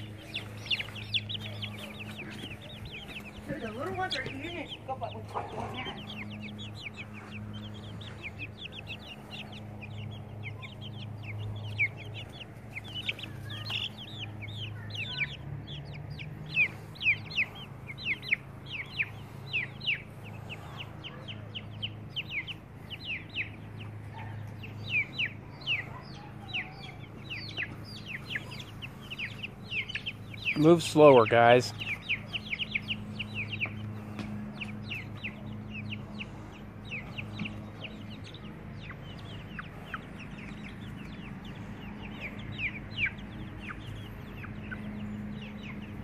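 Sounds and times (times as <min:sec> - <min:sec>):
low hum: 0:00.0 - 0:30.5
chicks peeping: 0:00.0 - 0:46.0.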